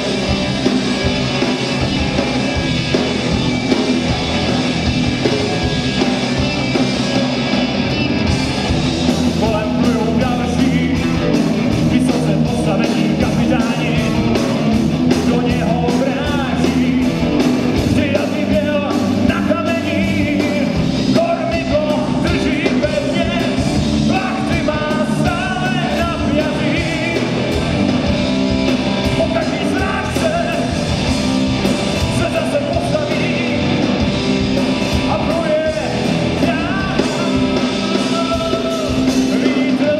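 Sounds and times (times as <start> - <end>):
bass guitar: 0.0 - 39.9
drums: 0.0 - 39.9
electric guitars: 0.0 - 39.9
person singing: 9.4 - 27.4, 32.0 - 34.0, 35.0 - 39.9.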